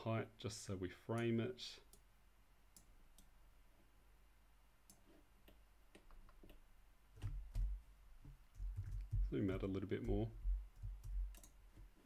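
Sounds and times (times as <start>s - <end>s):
computer mouse clicks: 2.7s - 3.4s, 4.8s - 6.6s, 10.8s - 11.9s.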